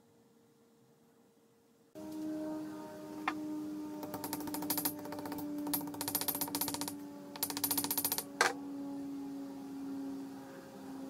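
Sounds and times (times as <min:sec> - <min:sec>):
rapid hammer taps on metal: 0:04.0 - 0:08.2.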